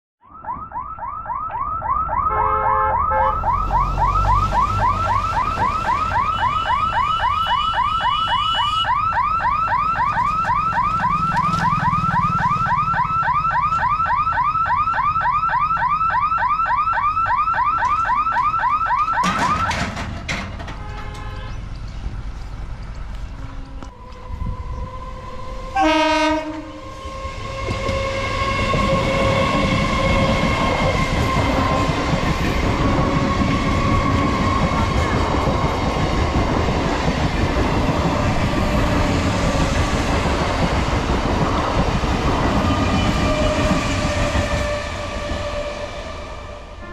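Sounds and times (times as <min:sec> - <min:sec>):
level crossing siren wailing: 0:00.2 - 0:19.9, 0:24.0 - 0:40.8
rumble of passing vehicles: 0:02.0 - 0:16.1, 0:17.2 - 0:46.9.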